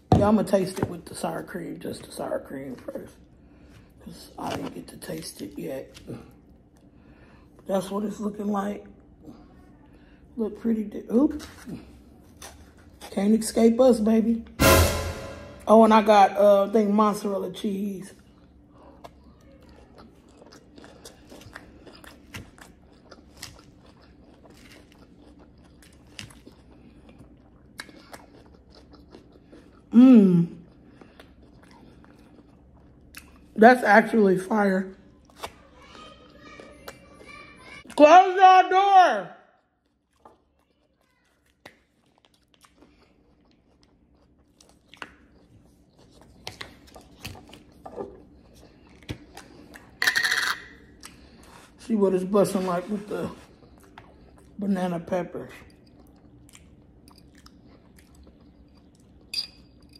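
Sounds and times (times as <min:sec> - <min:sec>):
close chewing with wet crunches: 0:18.2 - 0:33.6, 0:39.6 - 0:50.0, 0:50.8 - 0:51.8, 0:52.6 - 0:54.6, 0:55.4 - 0:59.9
person humming mmm: 0:29.9 - 0:30.6.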